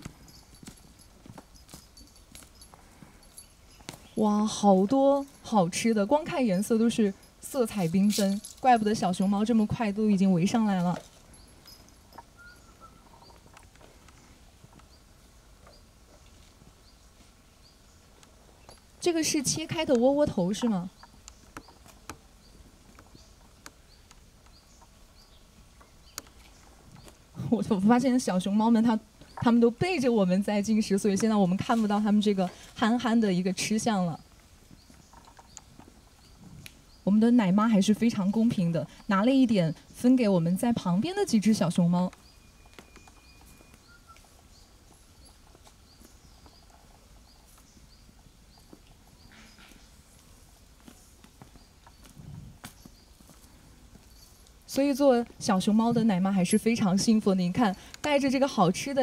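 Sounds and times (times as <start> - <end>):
faint high bird chirps: 11.3 - 13.5, 38.2 - 49.9.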